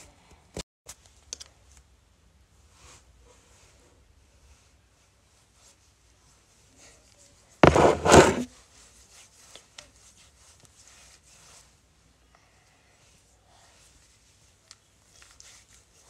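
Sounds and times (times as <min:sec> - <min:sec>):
knock and scrape of jar set down: 0:07.6 - 0:08.5.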